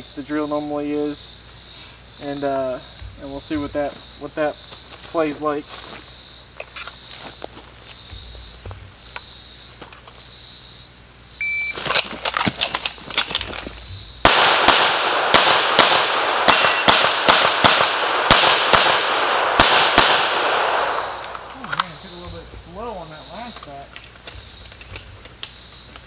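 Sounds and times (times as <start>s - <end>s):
insects buzzing: 0.0s - 26.0s
running footsteps: 2.9s - 10.2s, 11.7s - 14.2s, 21.0s - 26.0s
shot timer beep: 11.4s - 11.8s
rapid pistol fire: 14.2s - 21.5s.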